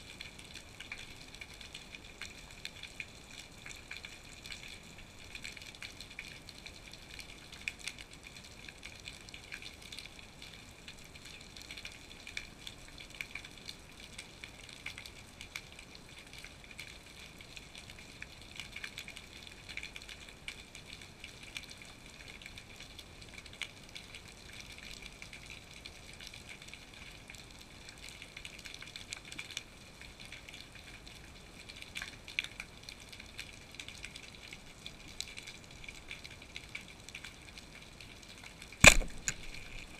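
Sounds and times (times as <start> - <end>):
underwater crackling clicks and pops: 38.6 - 39.9.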